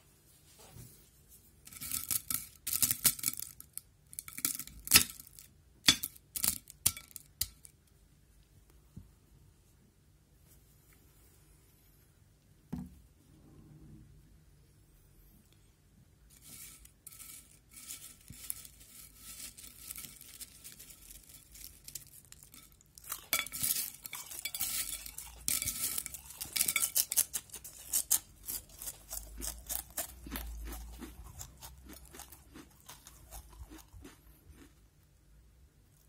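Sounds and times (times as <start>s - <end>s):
crisp packet crackling: 17.8s - 34.2s
crisps being crunched: 17.8s - 34.8s.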